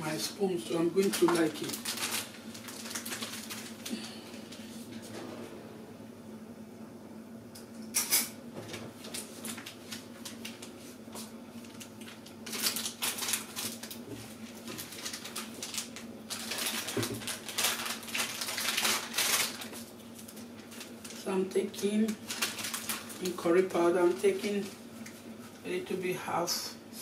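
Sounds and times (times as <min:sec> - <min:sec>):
low steady hum: 0:00.0 - 0:27.0
plastic sachet crinkling: 0:00.6 - 0:04.2, 0:09.0 - 0:10.8, 0:11.6 - 0:25.1.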